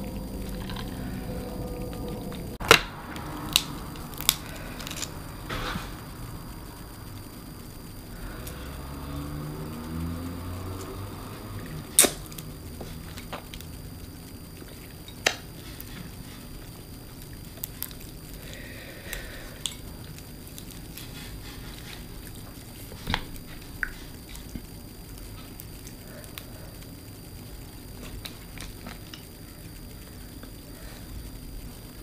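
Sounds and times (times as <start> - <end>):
shells cracking: 2.6 - 6.1, 11.9 - 13.8.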